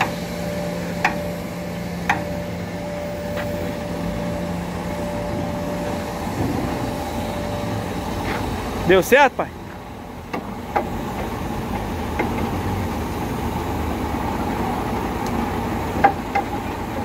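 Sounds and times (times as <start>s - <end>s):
diesel truck engine idling: 0.0s - 17.0s.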